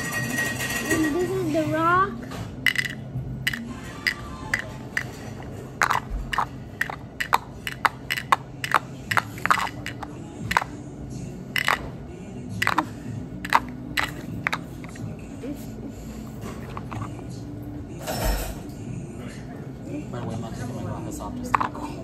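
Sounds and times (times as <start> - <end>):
plastic toys tapping on wooden table: 2.7 - 10.7, 11.6 - 11.9, 12.6 - 12.9, 13.5 - 15.0.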